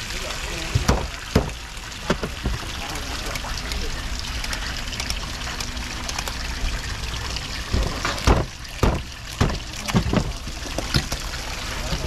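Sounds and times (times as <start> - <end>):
water running and splashing: 0.0 - 12.0
sharp knocks: 0.7 - 2.6, 7.7 - 10.4.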